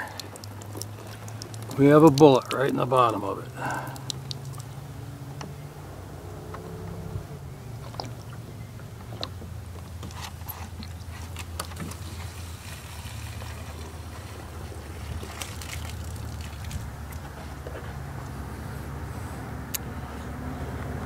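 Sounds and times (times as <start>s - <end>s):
low rumble: 3.6s - 9.6s.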